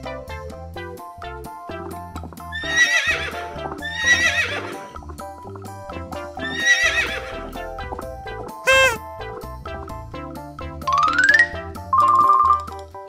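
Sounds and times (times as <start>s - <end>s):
background music: 0.0s - 13.0s
horse whinnying: 2.6s - 4.8s, 6.4s - 7.3s, 8.7s - 9.0s.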